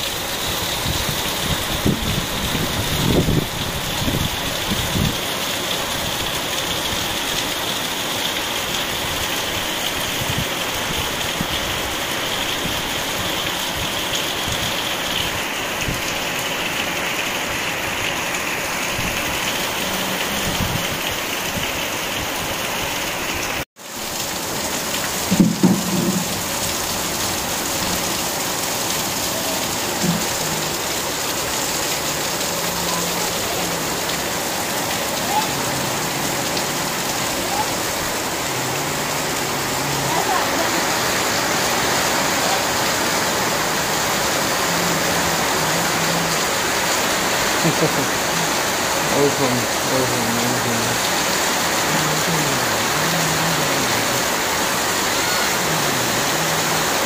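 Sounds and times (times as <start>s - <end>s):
heavy rain pouring: 0.0s - 57.0s
runoff dripping off roof edge: 0.0s - 57.0s.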